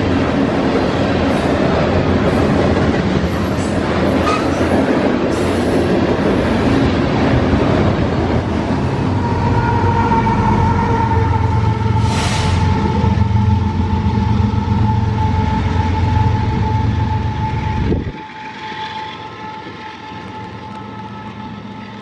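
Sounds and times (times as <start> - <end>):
freight train rumbling and rattling: 0.0 - 22.0.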